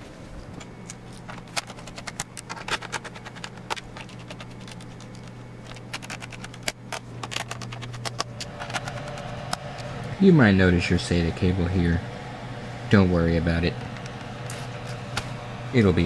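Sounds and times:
steady low hum: 0.0 - 16.0
hands handling plastic panel: 0.6 - 9.2
screwdriver clicking and scraping: 0.6 - 9.2.

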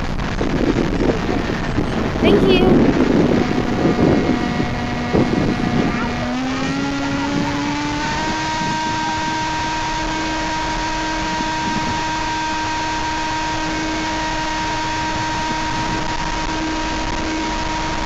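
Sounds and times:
wind noise hiss: 0.0 - 9.6
model plane electric motor: 3.1 - 18.0.

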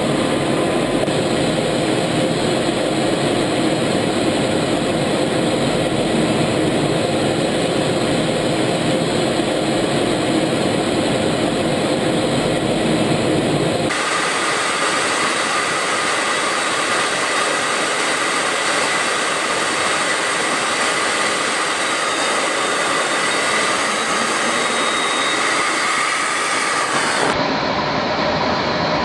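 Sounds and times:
jet aircraft roar: 0.0 - 29.0
faint whine: 11.5 - 29.0.

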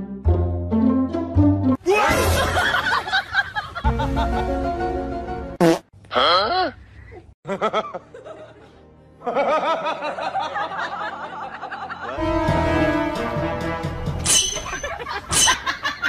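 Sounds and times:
music: 0.0 - 2.6, 3.8 - 5.6, 7.7 - 15.4.

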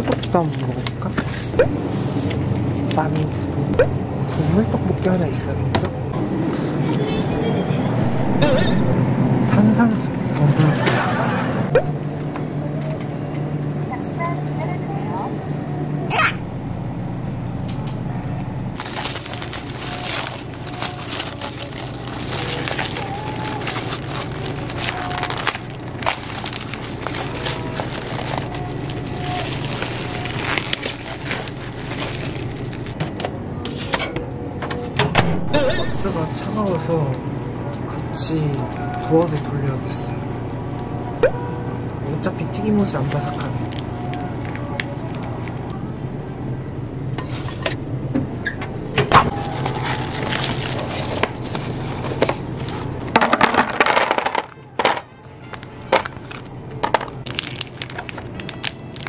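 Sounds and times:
low steady hum: 0.0 - 59.0
cling wrap crinkling and peeling: 18.8 - 33.0, 43.0 - 45.8, 49.3 - 59.0.

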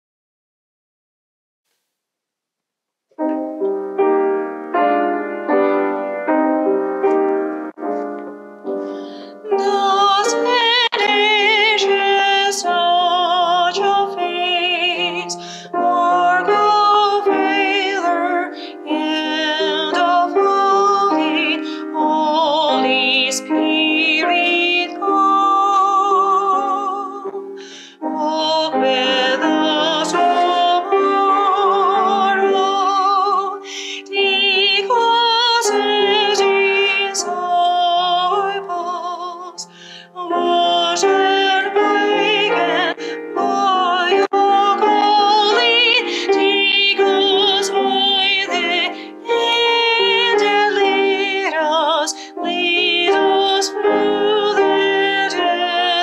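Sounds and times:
piano chords: 3.1 - 56.0
woman singing a hymn: 9.4 - 56.0.

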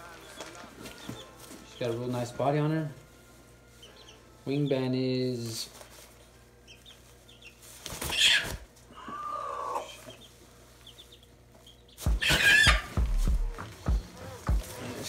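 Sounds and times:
hen calling: 8.1 - 10.3, 12.1 - 14.9.

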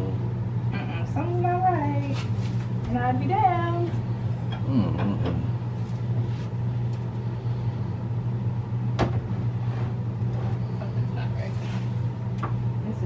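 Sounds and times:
low hum: 0.0 - 13.0
knocks on tv stand: 9.0 - 9.2.

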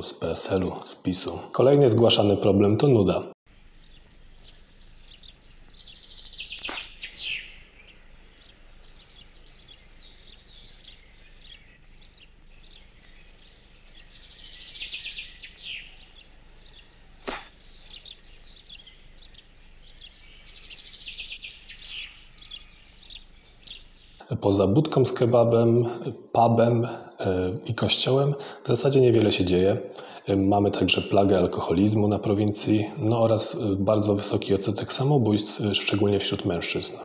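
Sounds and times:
songbird trilling: 3.5 - 24.2.

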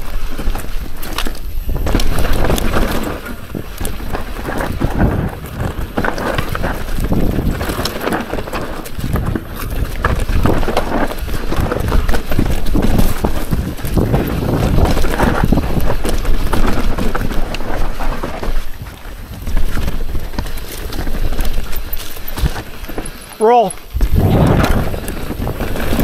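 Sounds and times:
bike clattering over bumps: 0.0 - 26.0
tyres rumbling over dirt: 0.0 - 26.0
wind noise on microphone: 0.0 - 26.0.

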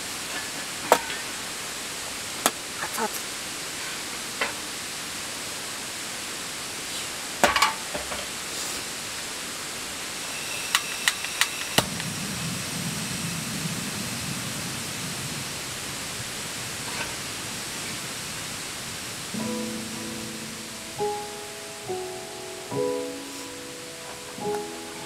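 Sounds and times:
cooking hiss on camp stove: 0.0 - 25.0
guitar and piano music: 19.3 - 25.0.

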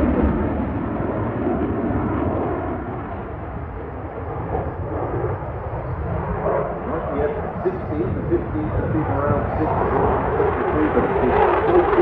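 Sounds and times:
jet engines rumbling in flight: 0.0 - 12.0.

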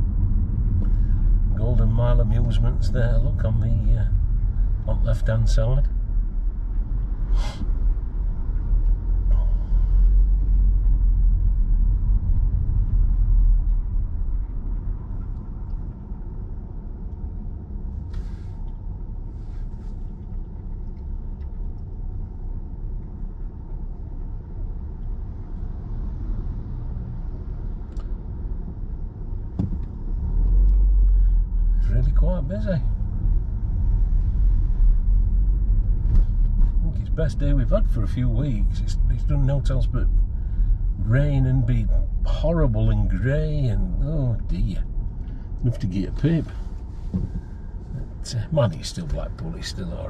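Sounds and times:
car cabin engine and road rumble: 0.0 - 50.0
short hisses: 7.3 - 7.7.

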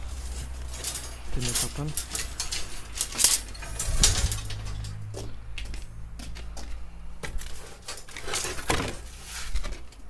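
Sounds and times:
steel bars clinking together: 0.0 - 5.1.

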